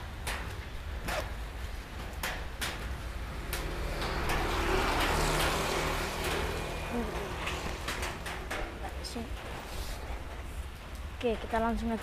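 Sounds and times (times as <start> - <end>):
plastic raincoat rustling: 4.8 - 10.8.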